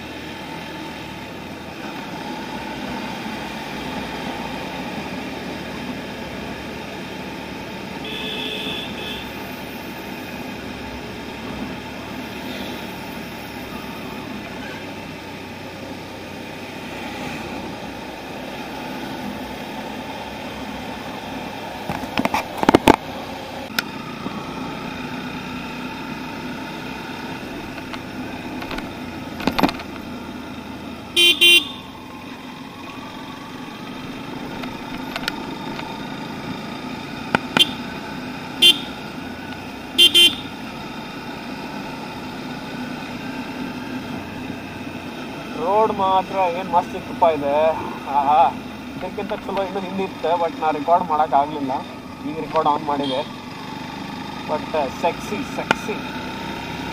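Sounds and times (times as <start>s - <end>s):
motorcycle engine and road noise: 0.0s - 56.9s
vehicle horns honking: 8.0s - 9.5s, 31.1s - 31.9s, 37.5s - 37.9s, 38.6s - 39.0s, 40.0s - 40.6s, 52.9s - 53.4s.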